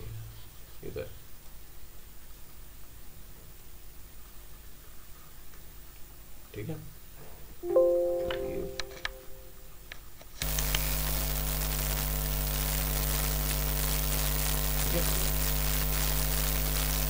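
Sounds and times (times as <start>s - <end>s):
electrical buzz with hiss: 10.4s - 17.0s.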